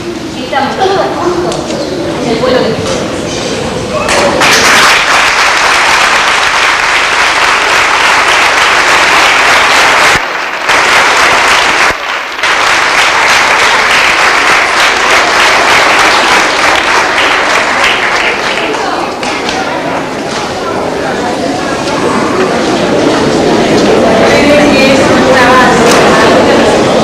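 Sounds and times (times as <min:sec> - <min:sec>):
crowd applauding in a hall: 0:04.1 - 0:19.8.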